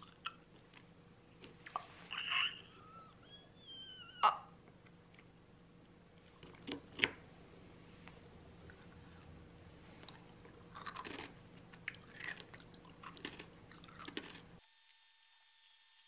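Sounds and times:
granola being chewed: 0:04.7 - 0:07.2, 0:10.0 - 0:14.6.

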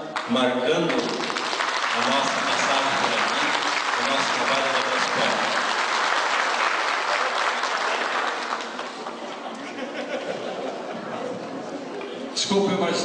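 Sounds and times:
audience applauding: 0:00.1 - 0:09.5.

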